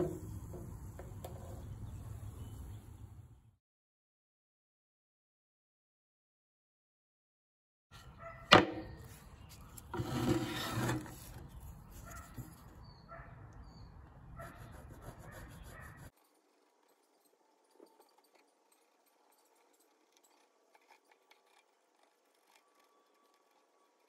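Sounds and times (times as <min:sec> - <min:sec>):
pencil scratching on paper: 0:09.0 - 0:13.0, 0:14.4 - 0:24.0.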